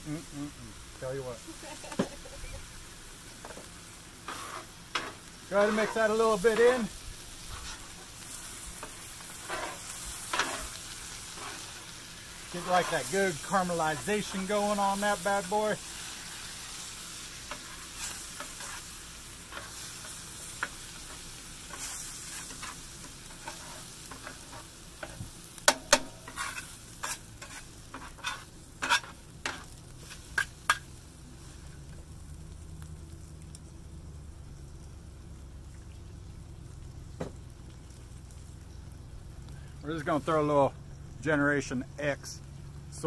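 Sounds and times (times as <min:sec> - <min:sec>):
noodles sizzling on a griddle: 0:00.0 - 0:43.0
metal scrapers clacking on griddle: 0:03.4 - 0:16.4, 0:17.3 - 0:31.0.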